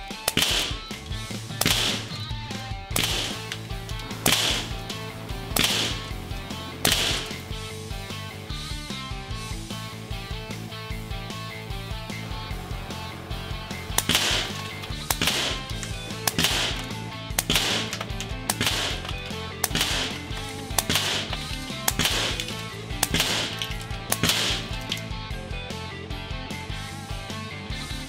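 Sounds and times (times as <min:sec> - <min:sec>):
air rifle shots: 0:00.0 - 0:08.3, 0:12.9 - 0:25.1
background music: 0:00.0 - 0:28.0.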